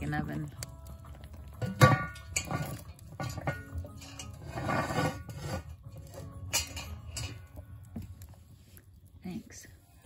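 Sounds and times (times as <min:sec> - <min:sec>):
metal pot knocking and clanking: 0:01.2 - 0:08.2
pot scraping on metal grate: 0:01.5 - 0:08.8.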